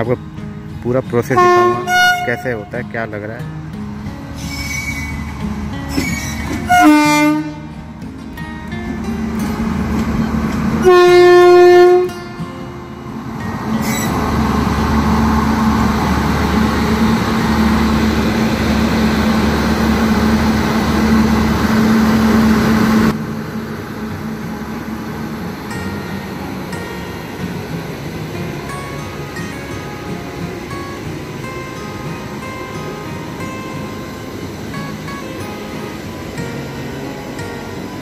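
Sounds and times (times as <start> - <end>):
locomotive rumbling past: 0.0 - 38.0
locomotive horn blasts: 1.2 - 3.0, 6.0 - 7.8, 10.7 - 12.4.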